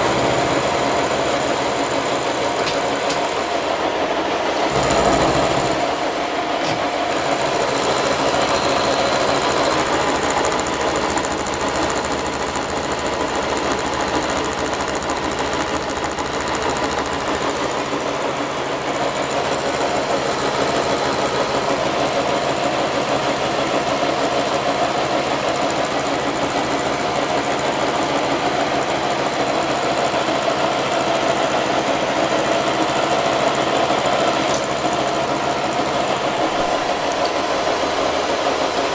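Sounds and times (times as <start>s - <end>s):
milling machine cutting steel: 4.4s - 30.4s.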